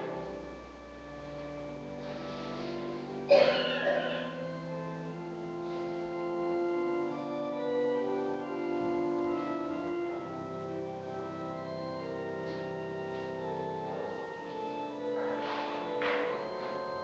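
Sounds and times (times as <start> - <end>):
church organ chords: 0.0 - 17.0.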